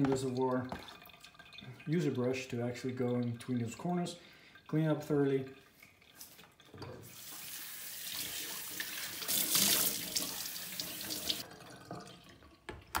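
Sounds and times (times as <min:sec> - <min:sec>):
water running from a tap: 0:06.0 - 0:12.6.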